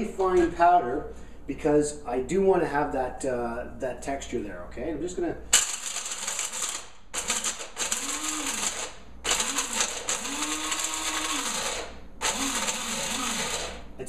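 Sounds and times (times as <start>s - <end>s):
coffee grinder chopping almonds: 5.6s - 13.9s.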